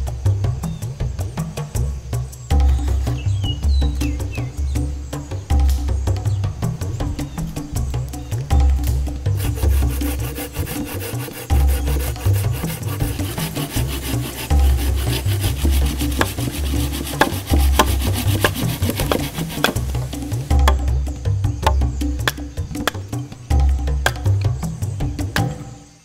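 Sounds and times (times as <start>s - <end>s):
background music with deep bass: 0.0s - 26.0s
wood being sawn: 9.4s - 20.8s
knife hammered into log: 9.5s - 20.9s.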